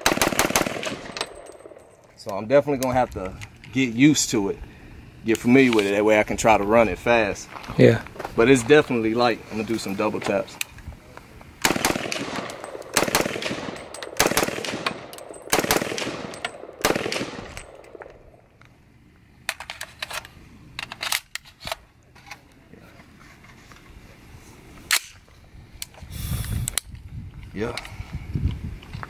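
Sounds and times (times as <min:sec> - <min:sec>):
rifle shots with echo: 0:00.0 - 0:02.0, 0:11.6 - 0:18.4
sharp crack: 0:00.0 - 0:03.8, 0:11.5 - 0:18.6, 0:24.9 - 0:25.2.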